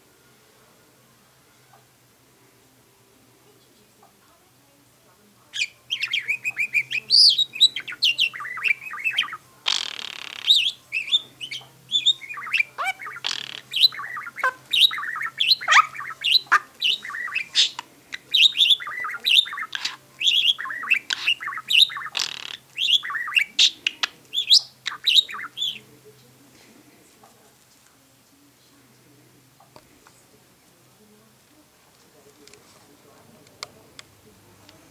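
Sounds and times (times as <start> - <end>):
budgerigar warbling: 5.5 - 25.8.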